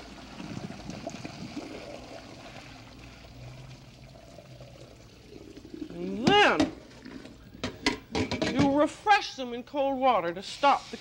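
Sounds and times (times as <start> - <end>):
water pouring into sink: 0.0 - 7.6.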